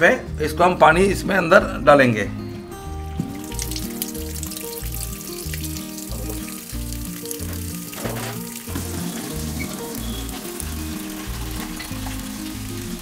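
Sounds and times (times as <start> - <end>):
background music with bass line: 0.0 - 13.0
tap water pouring into tub: 3.2 - 13.0.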